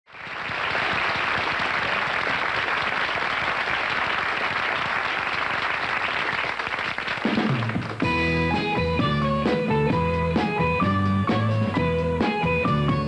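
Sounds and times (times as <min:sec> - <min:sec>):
audience applauding: 0:00.1 - 0:08.1.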